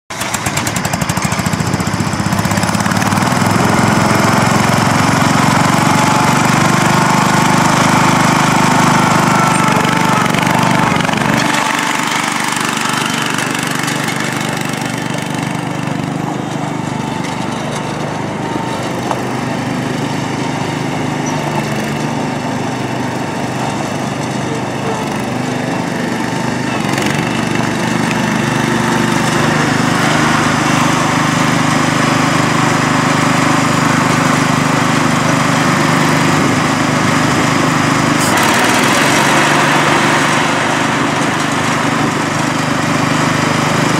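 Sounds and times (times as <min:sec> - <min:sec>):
riding lawn mower engine: 0:00.1 - 0:43.9.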